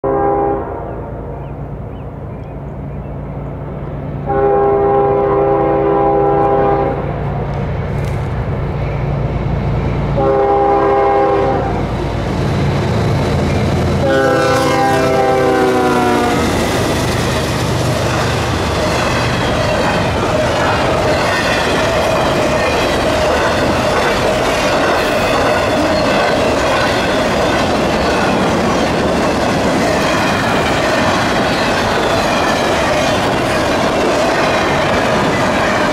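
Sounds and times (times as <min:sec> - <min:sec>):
train air horn blasts: 0:00.0 - 0:01.3, 0:04.2 - 0:07.1, 0:10.2 - 0:11.9, 0:14.0 - 0:16.6
train cars clickety-clack: 0:04.3 - 0:35.9.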